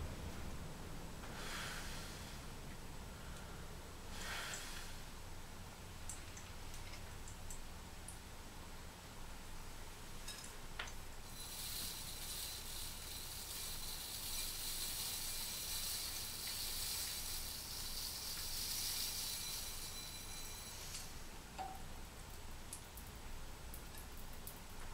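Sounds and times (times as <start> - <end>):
flame fizzing hiss: 11.2 - 21.2.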